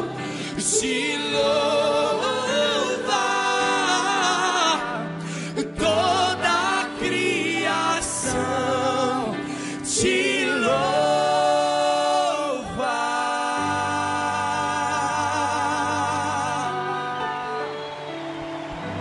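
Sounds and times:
man singing into a microphone: 0.0 - 18.0.

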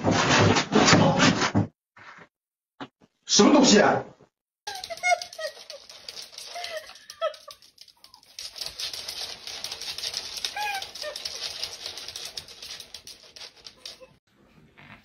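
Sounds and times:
dog claws scrabbling on wood floor: 4.7 - 14.2.

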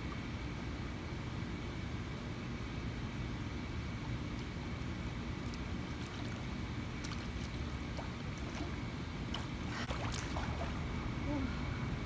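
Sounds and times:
water splashing and lapping: 5.2 - 11.1.

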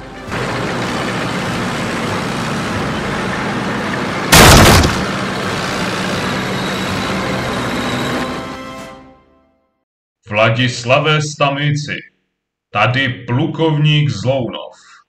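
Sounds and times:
tank engine and tracks: 0.0 - 9.2
tank crashing through fence: 4.3 - 5.4.

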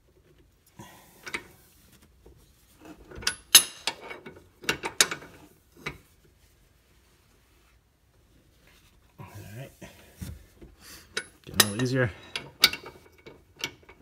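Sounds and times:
breaker bar metallic clicks and clanks: 3.1 - 5.3, 11.1 - 14.0.

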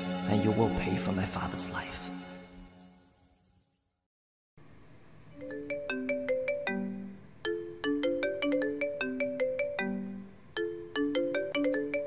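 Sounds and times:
marimba ringtone: 5.4 - 12.0.

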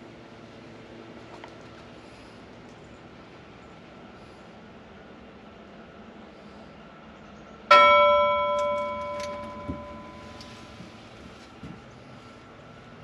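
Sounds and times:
metallic bell ding: 7.7 - 10.8.

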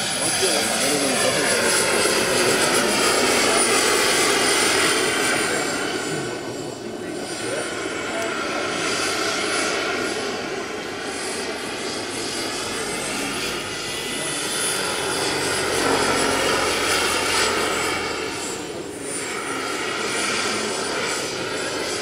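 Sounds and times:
model helicopter turbine whine: 0.0 - 22.0.

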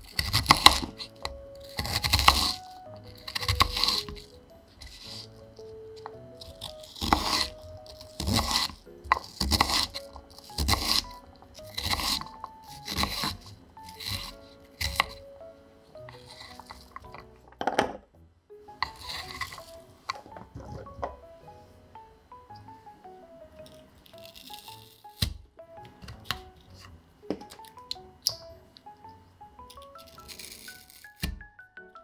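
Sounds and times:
crunching pastry shell: 0.0 - 15.3, 16.0 - 17.4, 18.8 - 20.3, 23.6 - 25.4, 29.6 - 31.3
soft background music: 0.0 - 32.0.

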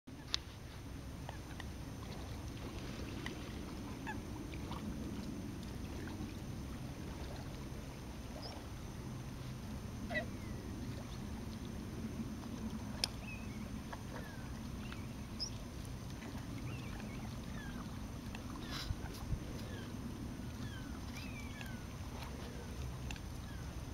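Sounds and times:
low outdoor rumble: 0.1 - 23.9
distant birds chirping: 16.6 - 23.9.

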